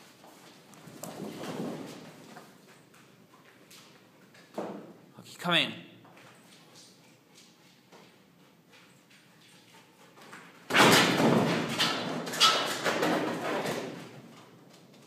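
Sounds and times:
wall and frame scraping and rattling: 0.4s - 2.8s.

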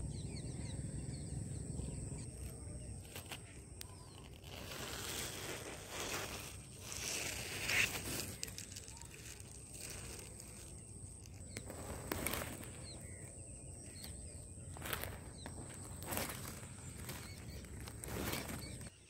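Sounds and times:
short brushing sounds: 4.4s - 10.5s.

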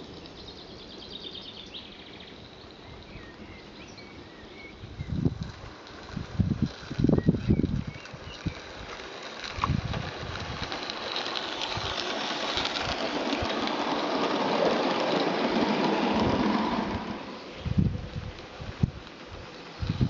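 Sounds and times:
model steam train rattling past: 0.0s - 20.0s
wind thumps on microphone: 9.6s - 10.7s, 17.6s - 19.0s, 19.8s - 20.0s.

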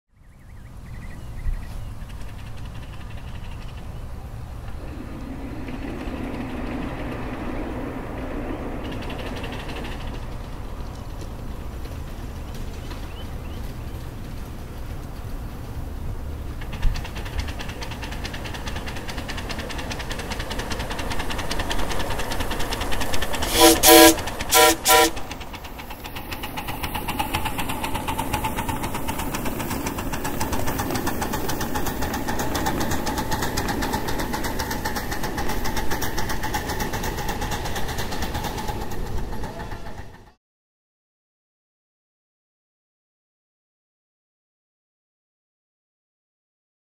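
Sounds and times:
steam locomotive chuffing: 1.7s - 40.4s
steam whistle toots: 23.4s - 25.3s.

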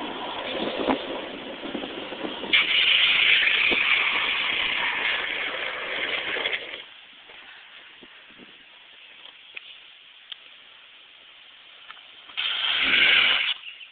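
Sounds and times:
wind on microphone: 0.0s - 6.8s, 7.8s - 8.8s, 12.4s - 13.6s
longboard wheels rolling on asphalt: 0.0s - 10.6s, 11.2s - 13.9s
loud hiss: 1.1s - 8.3s, 9.7s - 13.9s.

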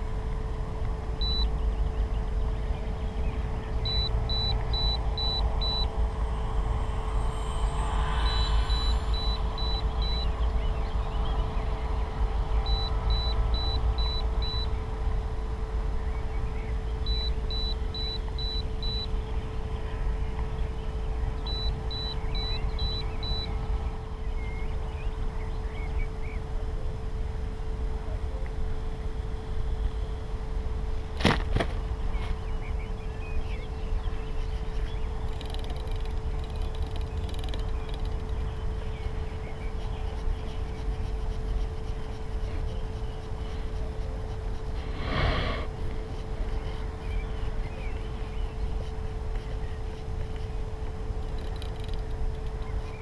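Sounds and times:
steady hum: 0.0s - 53.0s
high electronic beeps: 3.8s - 5.9s, 7.3s - 10.3s.

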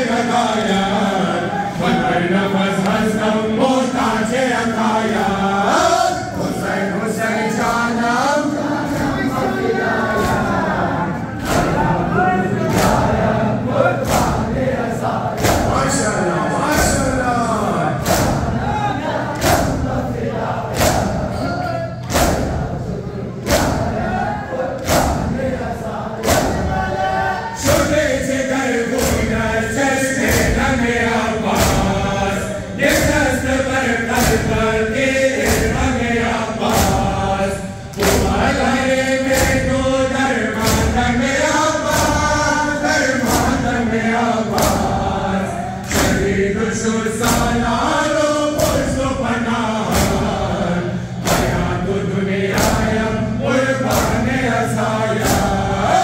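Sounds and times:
crowd of men chanting: 0.0s - 56.0s
hands slapping chests: 12.7s - 13.2s, 14.0s - 14.5s, 18.0s - 18.5s, 20.7s - 21.2s, 22.0s - 22.6s, 23.4s - 23.9s, 24.8s - 25.4s, 26.2s - 26.7s, 37.9s - 38.4s, 44.5s - 45.0s, 45.8s - 46.3s.

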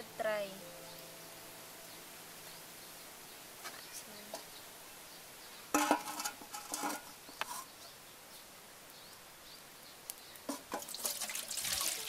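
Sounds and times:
metal pot clanking on stove: 5.7s - 7.7s.

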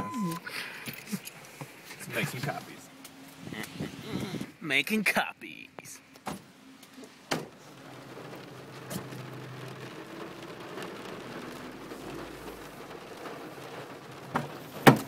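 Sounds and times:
rain on car windshield: 6.4s - 15.0s.

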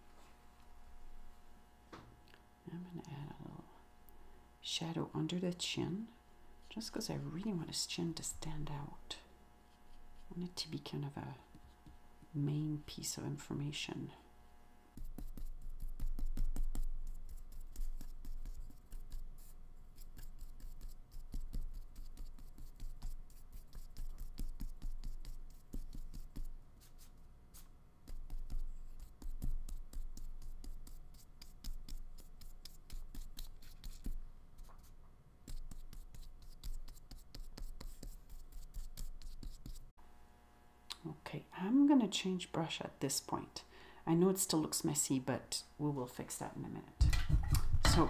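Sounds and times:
paintbrush scrubbing and dabbing: 9.7s - 10.5s, 15.0s - 39.9s.

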